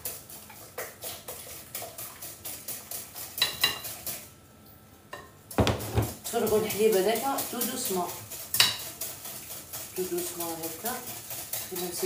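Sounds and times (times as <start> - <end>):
kitchenware clinking and scraping: 5.6 - 9.0.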